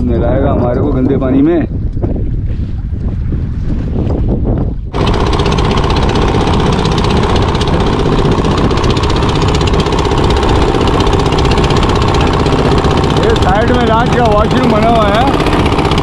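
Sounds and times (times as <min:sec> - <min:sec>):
diesel boat engine clattering: 0:04.9 - 0:16.0.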